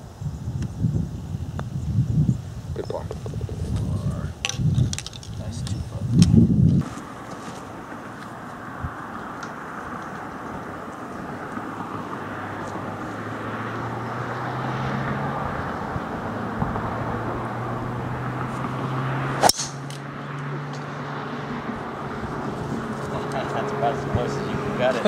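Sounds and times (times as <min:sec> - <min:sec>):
golf club striking ball: 0:19.4 - 0:21.0.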